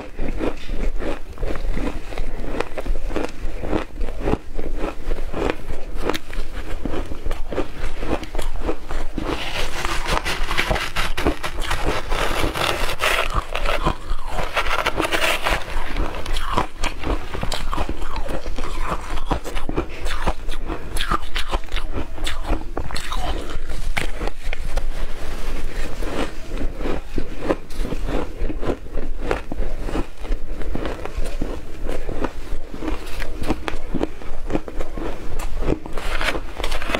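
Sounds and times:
ice crunching while chewed: 0:00.0 - 0:36.9
metal spoon scraping ice: 0:08.3 - 0:24.5, 0:35.9 - 0:36.9.

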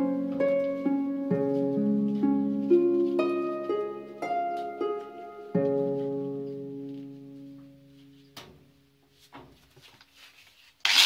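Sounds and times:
plucked string melody: 0:00.0 - 0:08.6.

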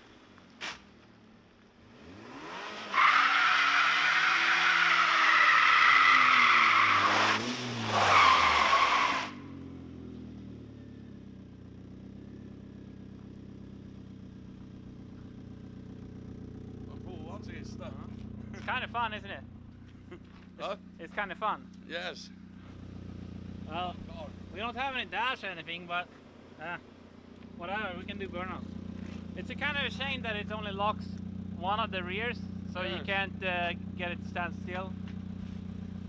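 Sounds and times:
car engine revving: 0:01.8 - 0:36.0
tyres squealing on wet tarmac: 0:02.9 - 0:07.4, 0:08.0 - 0:09.5.

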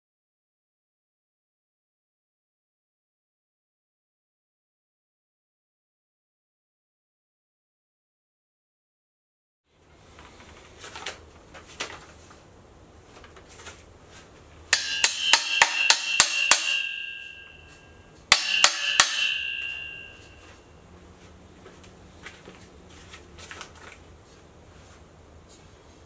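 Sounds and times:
metal ringing: 0:14.7 - 0:20.6.

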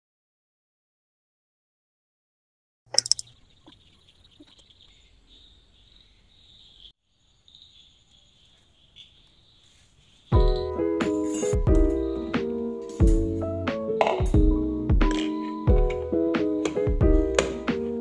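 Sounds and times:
crickets chirring: 0:03.0 - 0:12.3.

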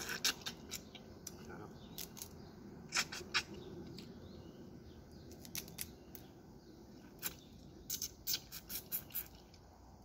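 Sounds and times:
crab shell clicks and crackles: 0:00.0 - 0:04.1, 0:05.2 - 0:06.3.

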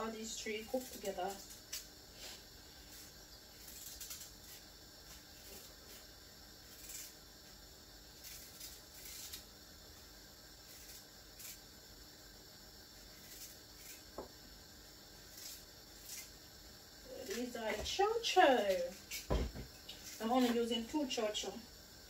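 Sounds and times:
knife scraping peel: 0:00.2 - 0:09.6, 0:10.6 - 0:11.7, 0:12.9 - 0:14.3, 0:15.2 - 0:16.4, 0:17.0 - 0:20.7.

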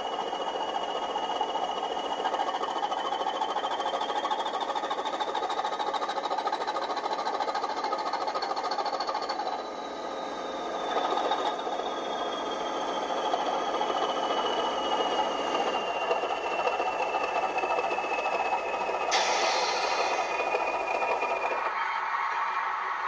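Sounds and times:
model train rattling past: 0:00.0 - 0:21.7
hiss: 0:17.6 - 0:21.6.

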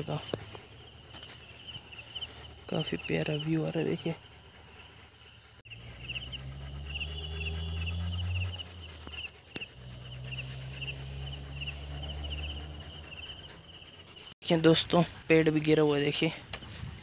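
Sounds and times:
crickets chirping: 0:00.0 - 0:17.0
low steady drone: 0:03.5 - 0:14.2.

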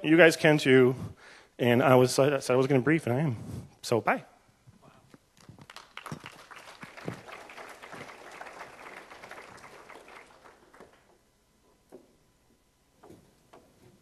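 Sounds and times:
audience applauding: 0:05.5 - 0:11.2.

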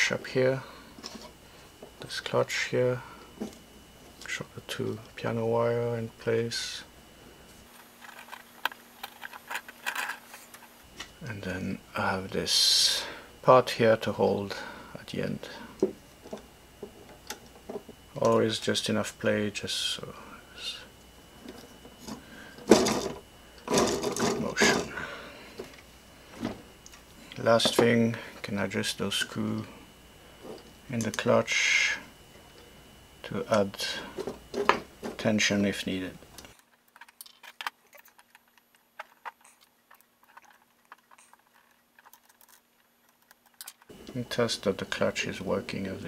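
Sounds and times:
plastic gears rattling and scraping: 0:07.8 - 0:10.7, 0:36.5 - 0:43.9
plastic parts clacking: 0:07.9 - 0:10.7, 0:36.4 - 0:43.9.

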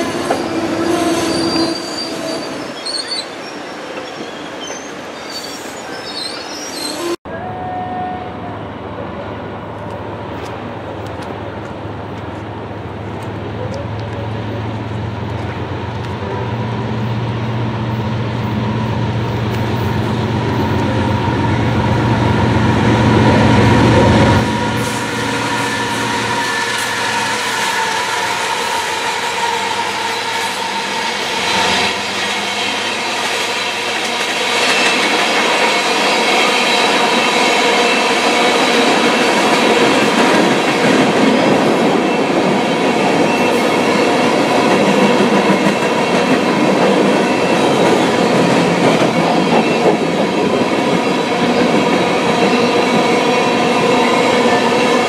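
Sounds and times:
high wheel squeal: 0:00.0 - 0:08.3, 0:24.4 - 0:33.8
train wheels rumbling on rails: 0:00.0 - 0:55.0.

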